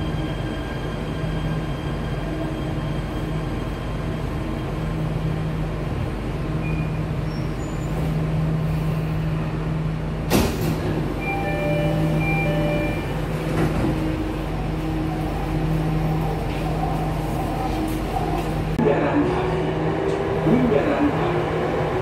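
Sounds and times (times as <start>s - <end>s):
train running noise with low hum: 0.0s - 22.0s
door chime short beeps: 11.2s - 13.1s.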